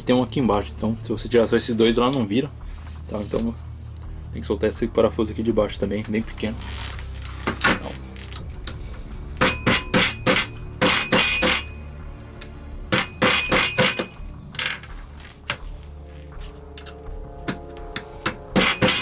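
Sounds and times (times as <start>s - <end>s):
mallet tapping metal punch: 9.4s - 12.2s, 12.9s - 14.6s, 17.5s - 19.0s.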